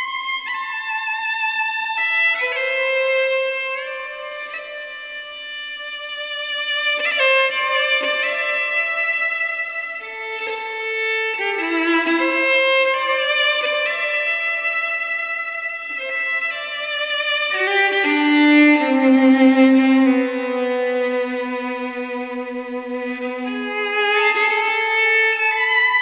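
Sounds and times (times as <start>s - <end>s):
solo fiddle melody: 0.0s - 26.0s.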